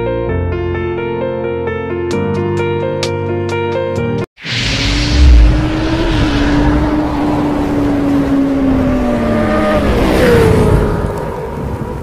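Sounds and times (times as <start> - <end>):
low boom: 4.4 - 7.9
hissing rush: 4.4 - 8.6.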